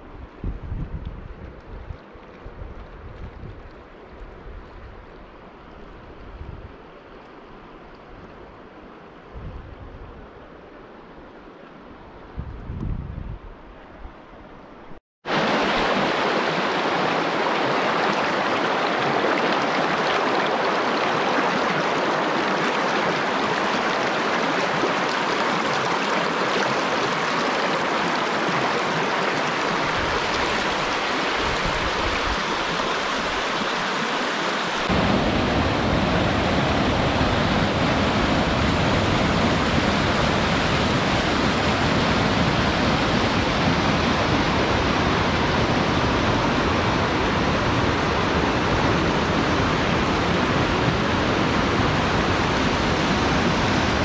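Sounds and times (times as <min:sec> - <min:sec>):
fast-flowing river rushing: 0:15.3 - 0:54.0.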